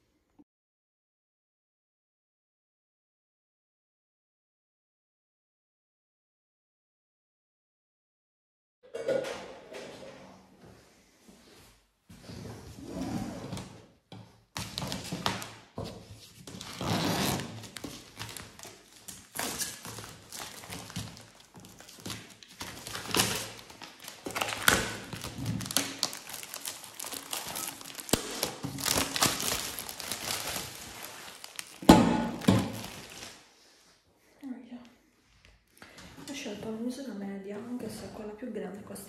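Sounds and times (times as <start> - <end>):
items thunking and tapping: 8.9 - 10.2, 31.8 - 33.0
plastic wrapping crinkling: 16.2 - 33.5.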